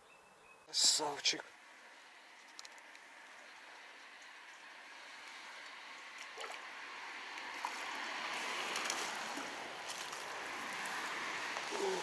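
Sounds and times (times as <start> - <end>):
water gurgling and splashing: 6.0 - 12.0.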